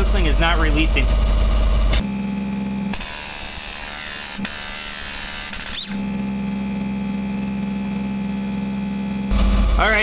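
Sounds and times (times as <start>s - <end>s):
pneumatic impact wrench buzzing: 2.9s - 6.3s.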